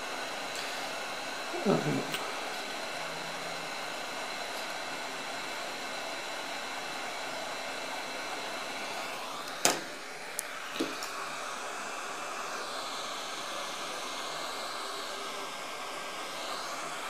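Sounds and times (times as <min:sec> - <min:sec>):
hot air gun blowing: 0:00.1 - 0:03.0.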